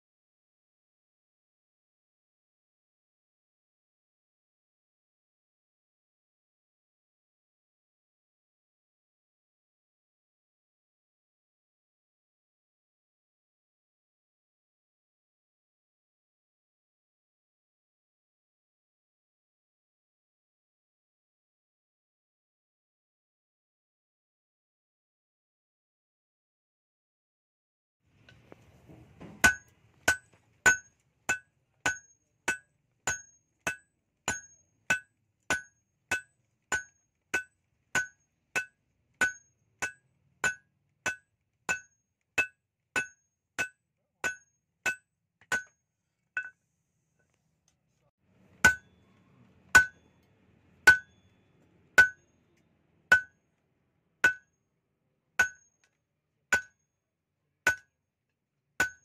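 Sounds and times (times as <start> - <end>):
hammer blows on an anvil: 48.6 - 49.0, 49.8 - 50.1, 50.8 - 51.3, 52.0 - 52.2.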